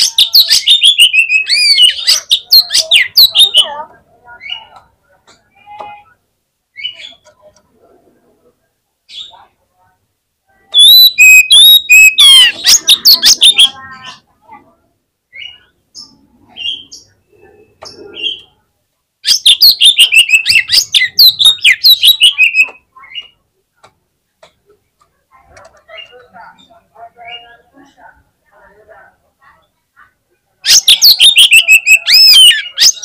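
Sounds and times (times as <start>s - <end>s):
bird singing whistled phrases: 0.2s - 3.6s, 10.7s - 13.8s, 19.3s - 23.2s, 30.7s - 33.0s.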